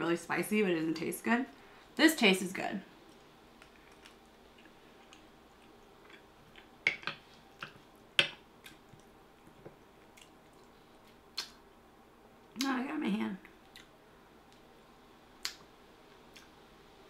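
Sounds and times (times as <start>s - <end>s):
chewing with wet mouth clicks: 3.1s - 7.8s, 8.6s - 11.6s, 13.4s - 13.9s, 15.4s - 16.5s.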